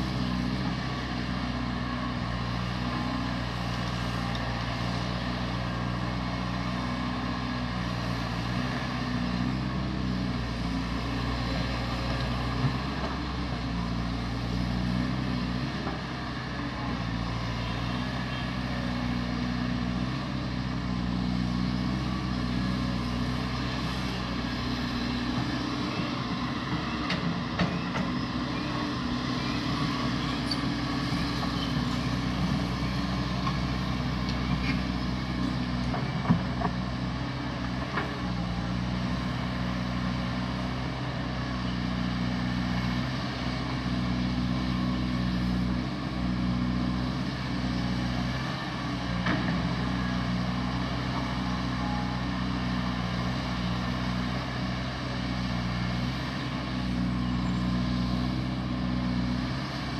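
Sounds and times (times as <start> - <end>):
excavator diesel engine drone: 0.0 - 59.9.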